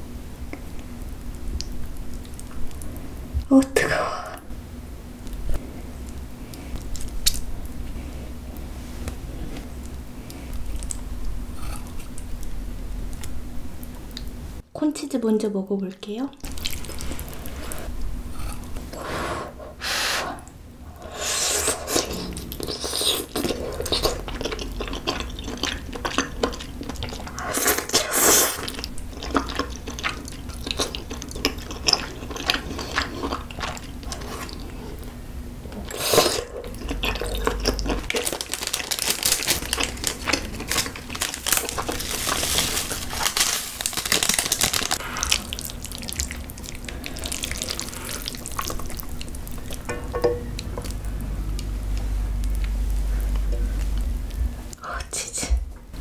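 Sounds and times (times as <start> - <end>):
wet chewing: 16.3 - 18.9, 21.1 - 54.8
noodle slurping: 18.4 - 34.9.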